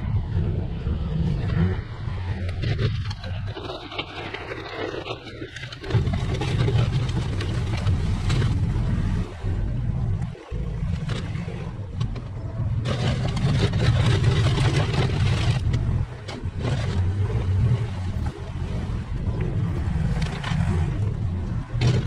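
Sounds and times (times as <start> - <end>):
earth-moving machine engine: 0.0 - 22.0.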